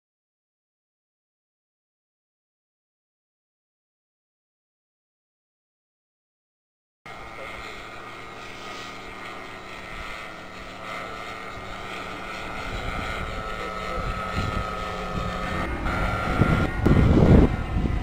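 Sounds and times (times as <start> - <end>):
model airplane engine droning: 7.1 - 18.0
wind buffeting microphone: 11.0 - 18.0.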